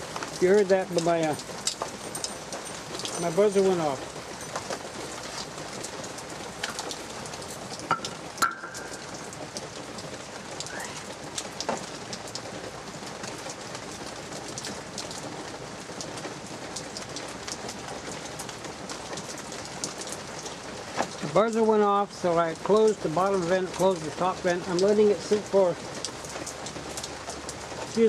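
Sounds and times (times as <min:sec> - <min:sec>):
light rain falling and dripping: 0:00.0 - 0:28.0
sharp metallic knocks: 0:07.9 - 0:09.3.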